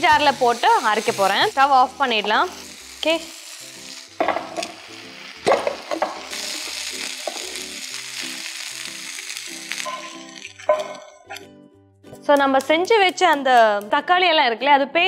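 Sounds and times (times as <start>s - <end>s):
food sizzling in a pan: 0.0s - 11.5s
soft background music: 0.0s - 15.0s.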